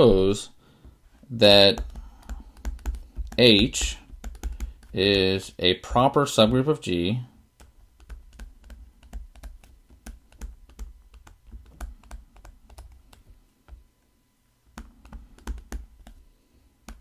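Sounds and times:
stylus tapping on pen tablet: 0:01.6 - 0:05.3, 0:07.6 - 0:13.8, 0:14.7 - 0:16.2.

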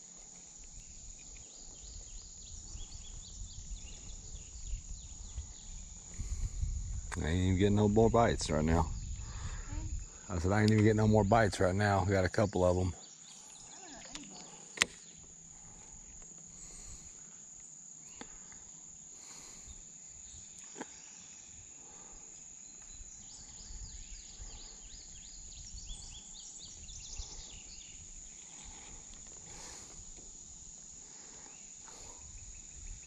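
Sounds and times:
fast pulsing insect chirp: 0:00.0 - 0:33.0
insects chorus: 0:00.0 - 0:33.0.

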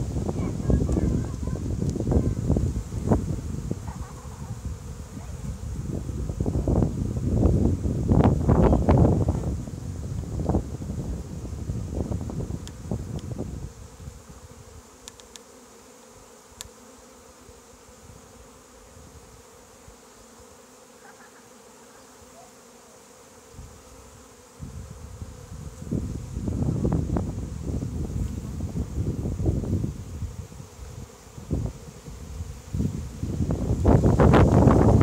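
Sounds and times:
wind rumbling on microphone: 0:00.0 - 0:14.6, 0:24.6 - 0:35.0
bee swarm humming: 0:00.0 - 0:35.0.

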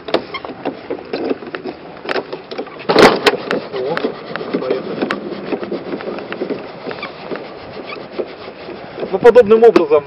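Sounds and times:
crank clicking and rubbing: 0:00.0 - 0:09.8
awning scrape: 0:02.8 - 0:09.4.

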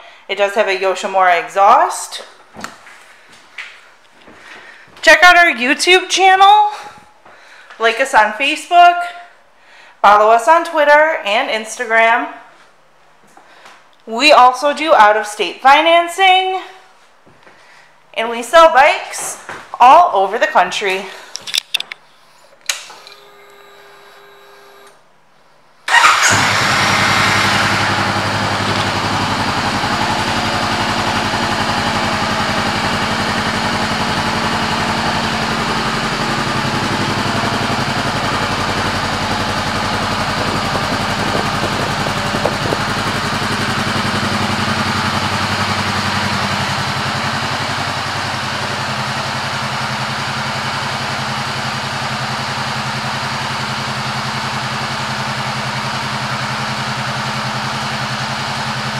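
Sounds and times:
motorcycle engine idling: 0:25.9 - 0:58.9.

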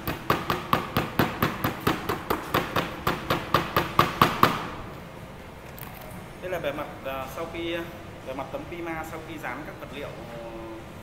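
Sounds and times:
rubber mallet tapping laminate: 0:00.0 - 0:04.7.

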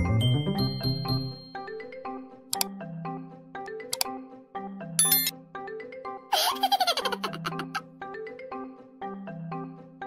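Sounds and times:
bright chime: 0:05.0 - 0:05.3.

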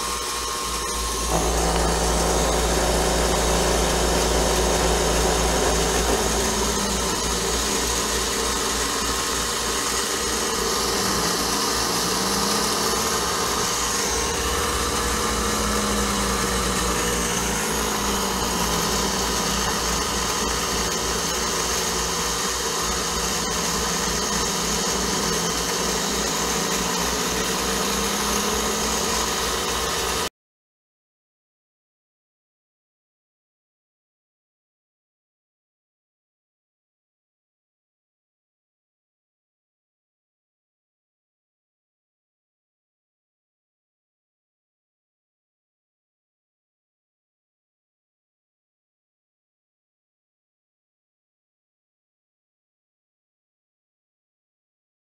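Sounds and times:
milling machine spindle running: 0:00.0 - 0:30.3
rising and falling tone: 0:01.1 - 0:22.3.

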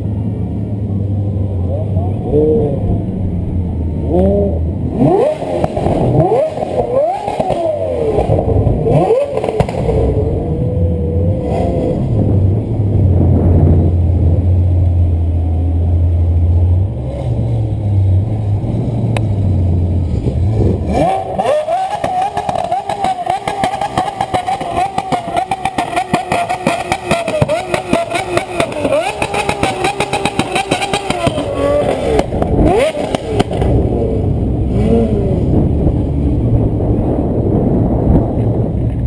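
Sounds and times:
steady low hum: 0:00.0 - 0:07.0
sports car engine revving: 0:00.0 - 0:39.0.

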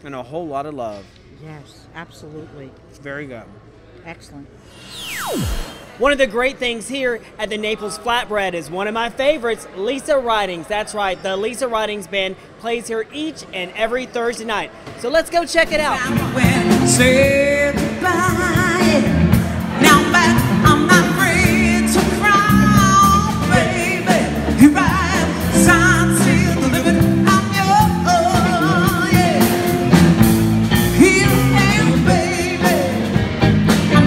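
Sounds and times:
bass guitar: 0:15.9 - 0:34.0
electric guitar: 0:16.0 - 0:34.0.

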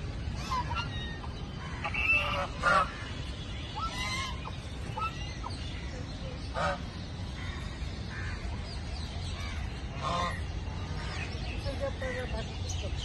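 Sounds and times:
low background rumble: 0:00.0 - 0:13.0
geese honking: 0:00.4 - 0:05.4.

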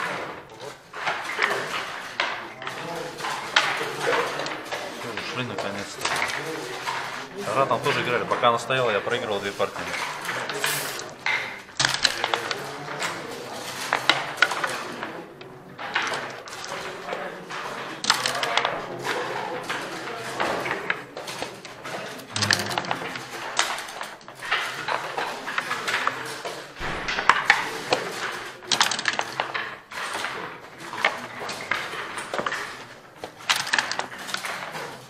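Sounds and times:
checkers clacking: 0:00.0 - 0:35.0
dice thrown onto board: 0:09.1 - 0:14.8, 0:22.2 - 0:25.0, 0:26.8 - 0:30.4.

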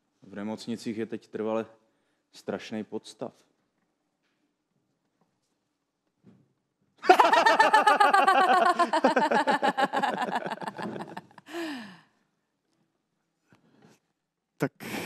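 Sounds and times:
woman laughing: 0:07.1 - 0:11.8
breathy gasp: 0:11.5 - 0:12.1.

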